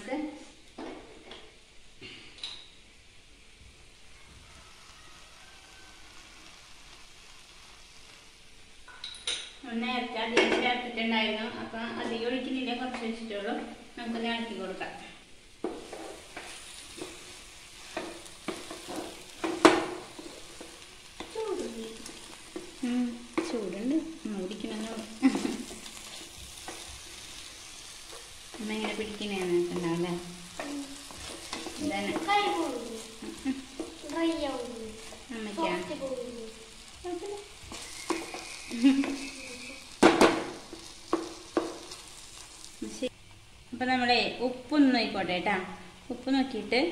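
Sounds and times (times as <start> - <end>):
soft sizzle: 0.0 - 46.9
spatula scraping a pan: 15.6 - 23.6, 24.6 - 42.7.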